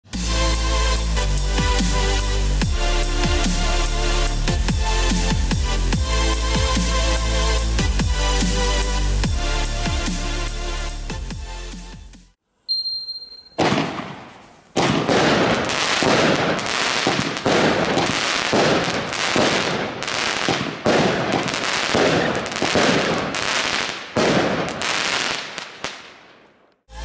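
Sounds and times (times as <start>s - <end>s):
firework shots bursting: 13.5s - 26.7s
dense firework crackling: 13.5s - 26.8s.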